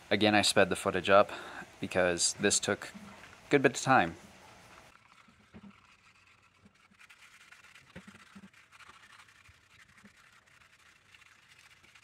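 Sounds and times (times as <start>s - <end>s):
sandpaper scratching: 4.9s - 12.0s.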